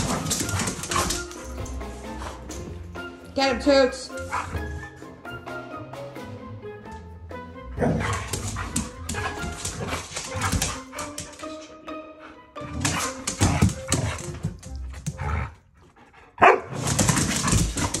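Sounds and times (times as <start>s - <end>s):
dogs barking and yipping: 0.0s - 2.6s, 7.8s - 11.4s, 16.4s - 18.0s
background music: 0.0s - 18.0s.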